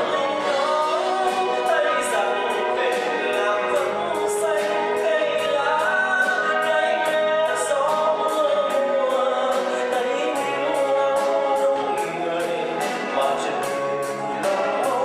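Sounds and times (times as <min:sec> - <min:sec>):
live band playing slow bolero: 0:00.0 - 0:15.0
man singing long notes: 0:00.0 - 0:15.0.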